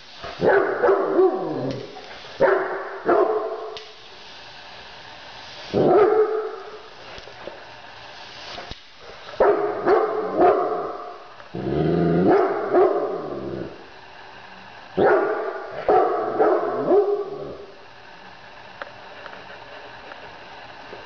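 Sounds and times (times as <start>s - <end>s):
big dog barking: 0.3s - 3.8s, 5.7s - 6.8s, 9.4s - 13.8s, 15.0s - 17.7s.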